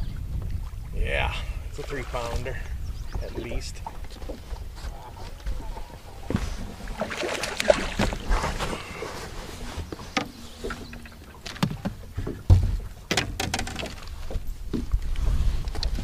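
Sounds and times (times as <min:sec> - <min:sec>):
low wind rumble: 0:00.0 - 0:16.0
knocks and clatter in boat: 0:01.7 - 0:16.0
fish splashing in water: 0:06.8 - 0:09.0.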